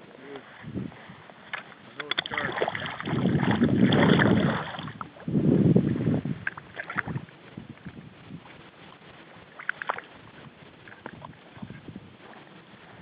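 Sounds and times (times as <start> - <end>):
water sloshing and lapping: 0.4 - 13.0
water surges: 1.4 - 13.0.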